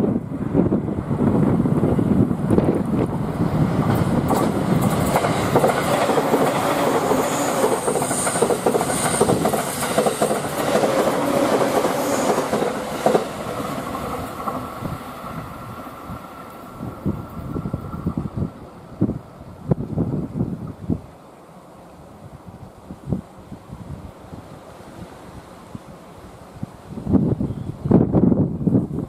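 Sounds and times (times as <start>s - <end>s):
train wheels running on rails: 0.0s - 19.0s.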